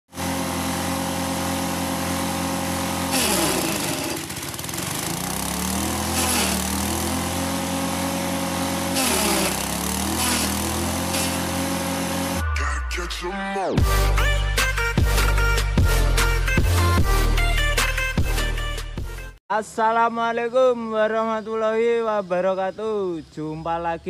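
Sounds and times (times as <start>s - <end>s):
chopper shredding stalks: 0.1s - 12.4s
small stationary engine running: 0.1s - 12.4s.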